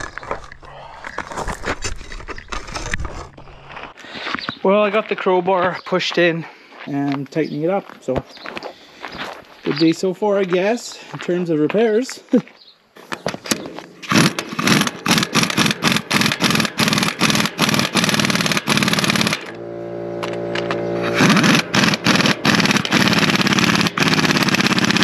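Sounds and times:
pneumatic impact wrench hammering: 13.5 - 25.0.

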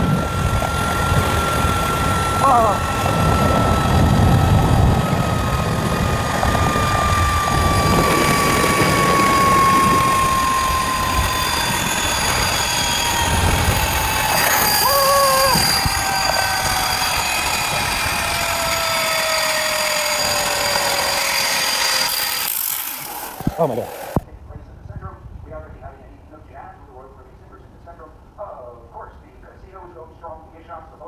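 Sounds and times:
wind on microphone: 0.0 - 21.6
zip-line trolley whine: 0.0 - 24.2.

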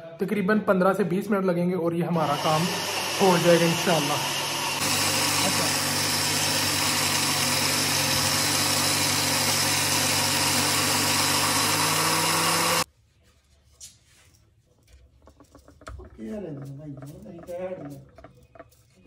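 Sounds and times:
electric grinder motor running: 2.2 - 12.9.

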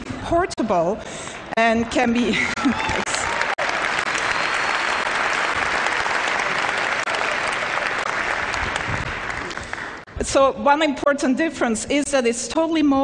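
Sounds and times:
audience applauding: 2.6 - 10.1.

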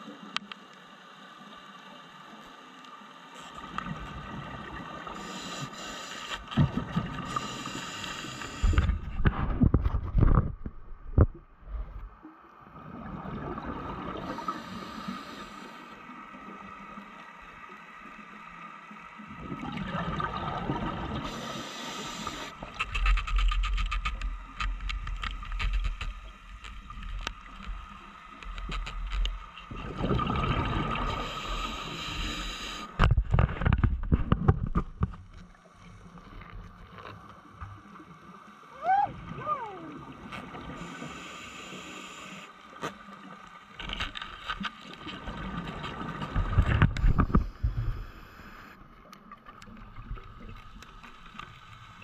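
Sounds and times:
underwater wash: 0.0 - 52.0
crackling clicks: 0.2 - 0.9, 22.1 - 29.7, 42.7 - 52.0
regulator bubbles exhaled: 19.4 - 22.8, 29.7 - 33.4.

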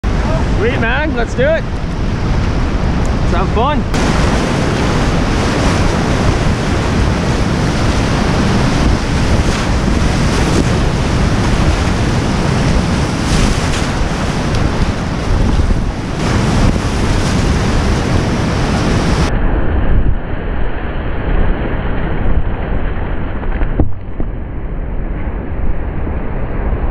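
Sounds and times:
water splashes: 0.0 - 19.3
wind on microphone: 0.0 - 26.9
whitewater rapids rushing: 3.2 - 19.3.

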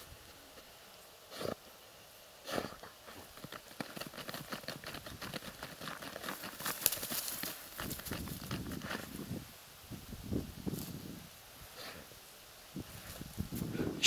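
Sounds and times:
reed stalks crackling and rustling: 3.0 - 9.3.

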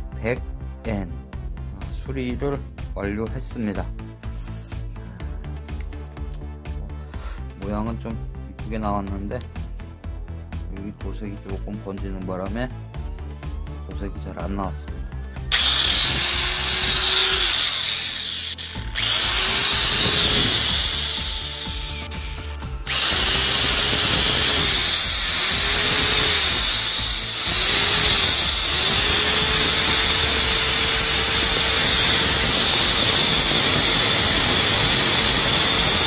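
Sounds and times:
angle grinder whining: 15.5 - 36.0.

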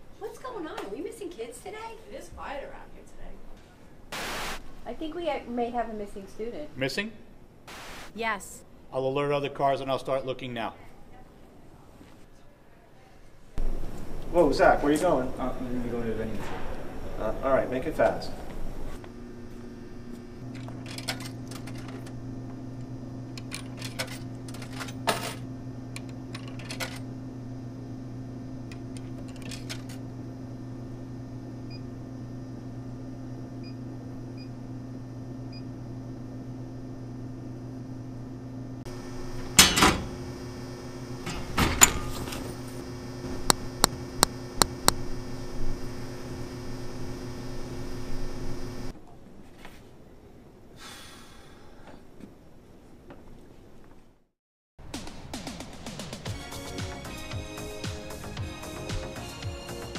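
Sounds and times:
vending machine hum: 13.5 - 49.0, 56.2 - 59.9.

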